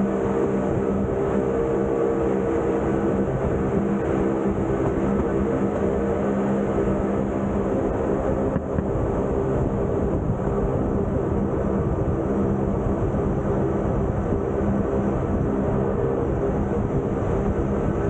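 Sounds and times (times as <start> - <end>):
steady hum: 0.0 - 18.0.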